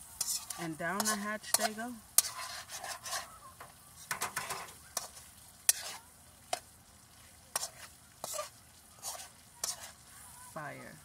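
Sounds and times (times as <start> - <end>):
metal spoon scraping a wok: 0.0 - 3.4, 4.0 - 6.7, 7.5 - 10.1
meat sizzling: 0.0 - 11.0.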